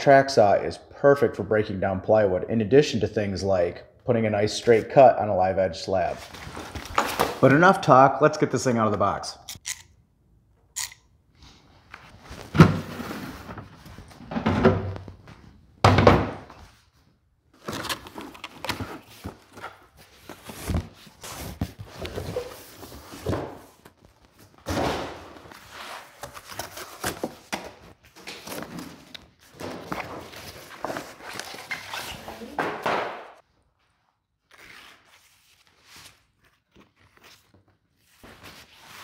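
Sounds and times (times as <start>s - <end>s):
cardboard rustling: 17.6s - 24.6s.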